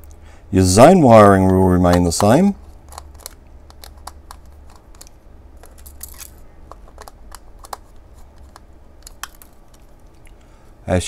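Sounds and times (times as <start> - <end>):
screwdriver clicking on plastic: 1.9 - 5.2, 6.7 - 9.9
metal scraping plastic: 1.9 - 10.0.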